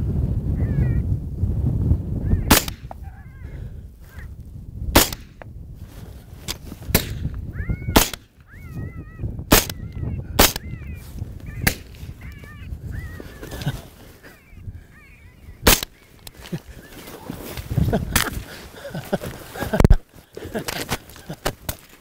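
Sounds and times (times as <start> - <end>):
low wind noise: 0.0 - 22.0
rifle shots: 2.5 - 2.9, 5.0 - 5.4, 7.9 - 8.3, 9.5 - 9.8, 10.4 - 10.7, 11.6 - 12.0, 15.6 - 16.0
wavering high-pitched calls: 7.5 - 16.2.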